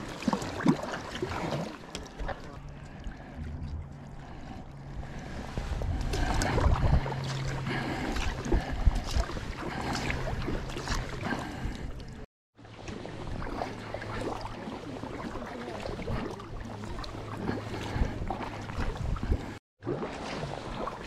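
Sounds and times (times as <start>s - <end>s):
paddle splashing and dripping: 0.0s - 21.0s
steady low hum: 2.5s - 12.3s.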